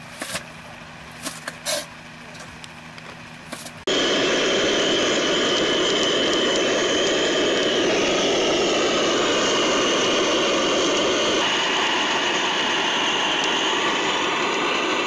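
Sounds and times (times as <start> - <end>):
high constant tone: 0.5 - 15.0
loud hissing roar: 3.9 - 15.0.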